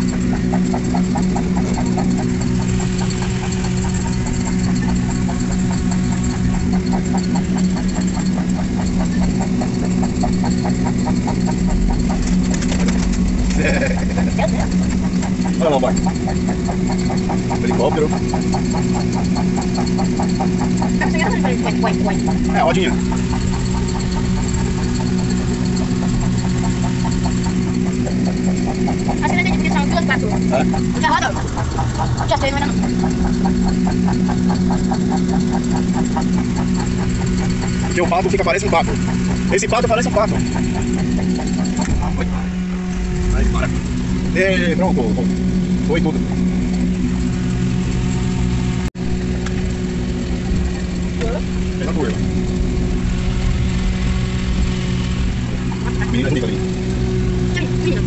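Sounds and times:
motor droning: 0.0s - 58.0s
vehicle engine humming: 0.0s - 58.0s.

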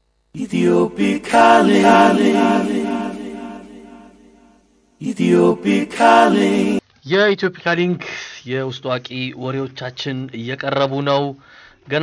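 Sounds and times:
a cappella vocal jingle: 0.4s - 6.8s.

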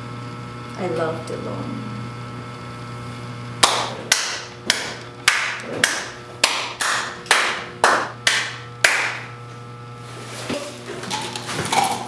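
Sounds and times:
person clapping slowly: 3.6s - 9.3s.

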